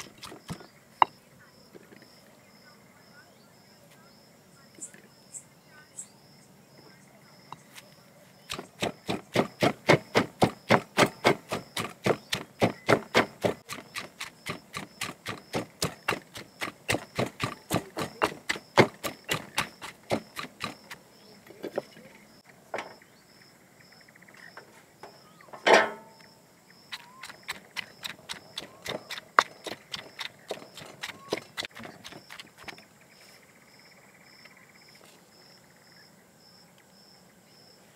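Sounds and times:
stone pestle pounding in mortar: 0.0s - 0.6s, 8.5s - 21.0s, 27.0s - 32.8s.

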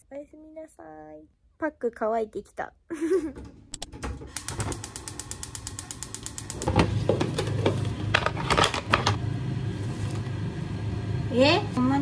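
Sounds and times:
salad spinner ratchet clicking: 4.3s - 6.7s
spinning basket whirring: 4.3s - 6.8s.

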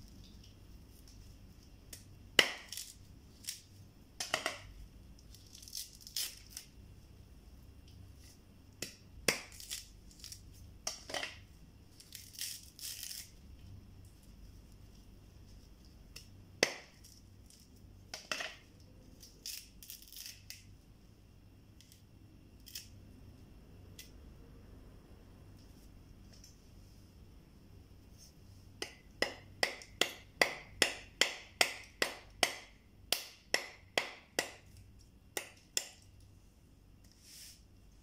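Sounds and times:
coconut husk tearing: 5.2s - 6.7s.

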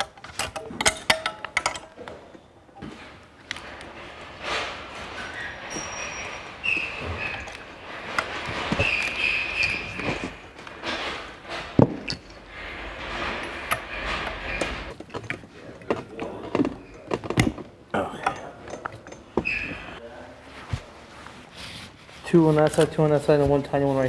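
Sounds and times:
hand tools tapping metal: 0.0s - 2.4s, 13.3s - 20.0s.

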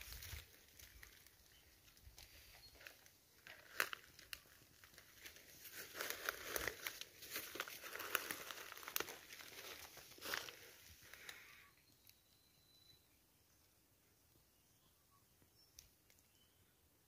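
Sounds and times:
leaves and twigs crackling underfoot: 0.0s - 12.2s.

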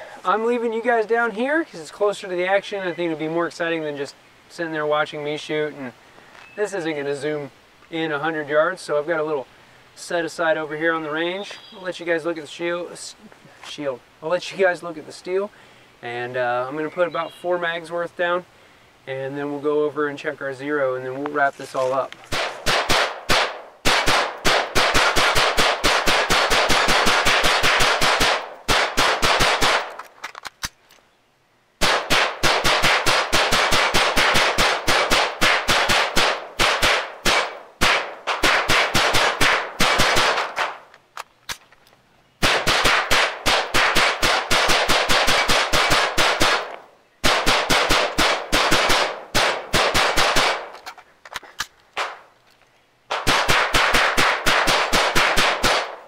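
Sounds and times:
bullets striking steel targets: 31.8s - 40.8s.

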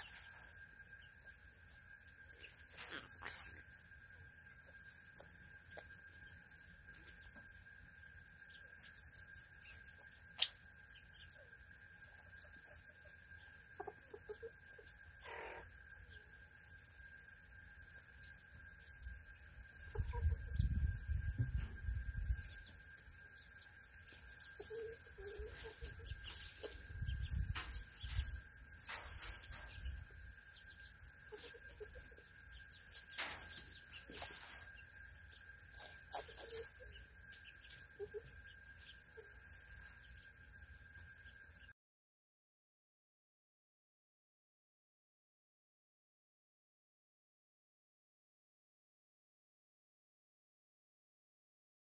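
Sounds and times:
soft chicken calls: 8.5s - 16.3s, 19.7s - 40.2s
steady high hum: 15.8s - 41.4s.

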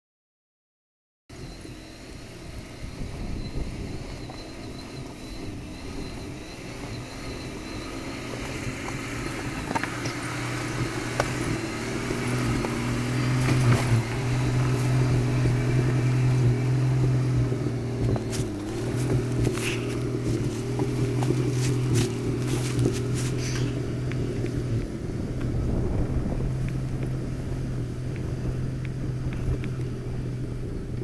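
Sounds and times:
vehicle engine at low revs: 1.3s - 31.0s
stones crunching under tyres: 6.8s - 31.0s.

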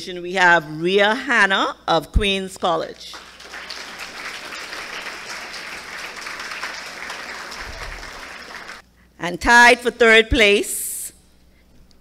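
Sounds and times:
audience applauding: 3.1s - 8.8s.

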